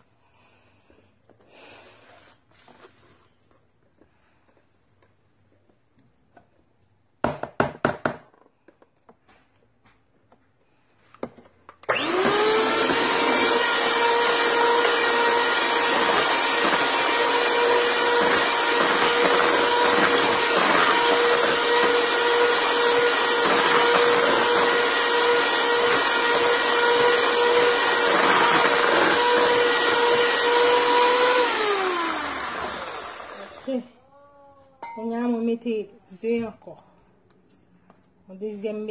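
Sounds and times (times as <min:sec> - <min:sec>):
electric hand mixer whining: 0:11.8 - 0:33.9.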